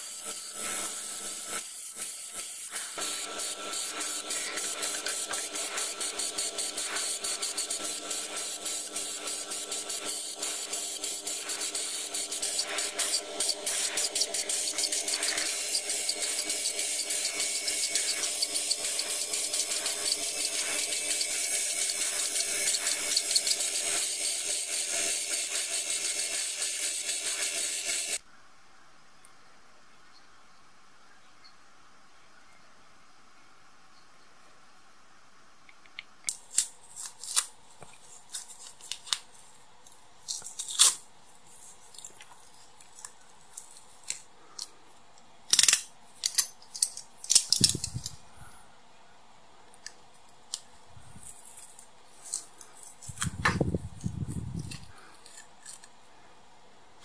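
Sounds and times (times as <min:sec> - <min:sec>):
paint spray hiss: 0:00.0 - 0:28.2.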